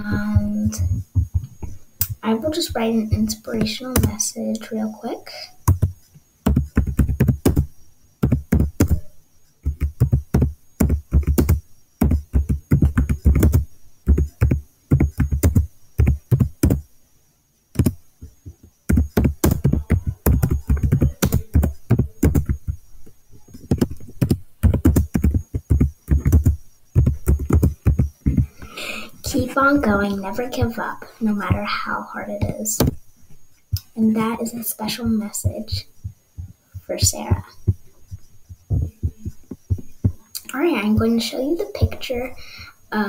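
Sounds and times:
typing on computer keyboard: 6.5s - 16.8s, 17.8s - 18.0s, 18.9s - 22.8s, 23.5s - 28.5s.

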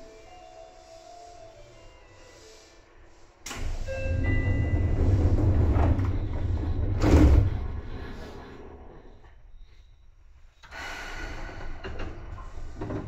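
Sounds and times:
train rumble: 0.0s - 13.0s
train clunk: 3.4s - 9.4s, 10.6s - 13.0s.

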